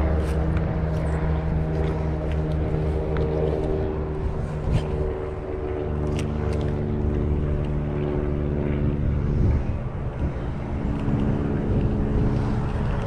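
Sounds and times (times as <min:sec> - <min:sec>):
distant engine drone: 0:00.0 - 0:13.0.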